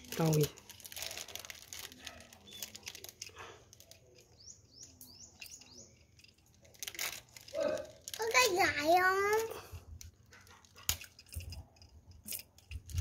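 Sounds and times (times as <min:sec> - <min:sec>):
bird chirping: 0:02.4 - 0:06.4.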